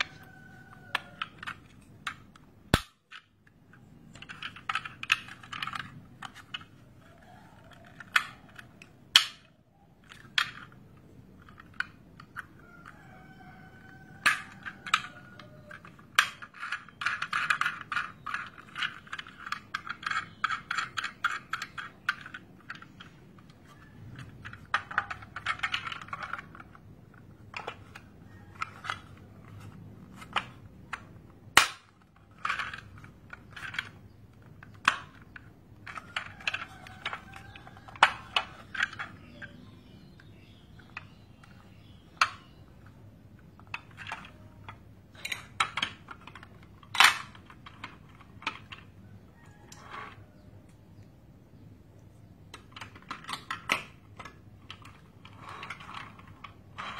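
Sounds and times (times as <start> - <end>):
plastic bricks snapping: 0.0 - 12.9, 13.8 - 50.9, 52.4 - 56.9.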